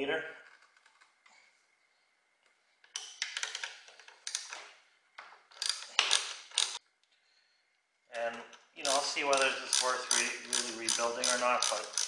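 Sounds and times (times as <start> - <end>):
ratchet wrench clicking: 5.6 - 6.8, 8.8 - 12.0.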